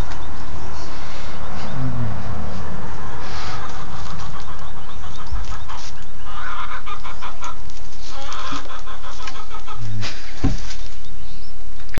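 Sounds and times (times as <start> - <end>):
rooster drawn-out calls: 0.8 - 10.4
rooster clucking: 1.3 - 10.6.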